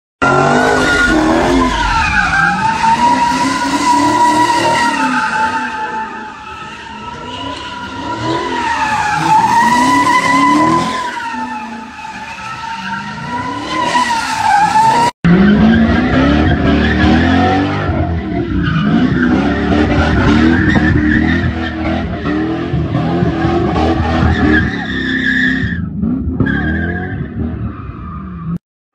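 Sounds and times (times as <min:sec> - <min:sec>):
car engine revving: 0:00.2 - 0:05.3.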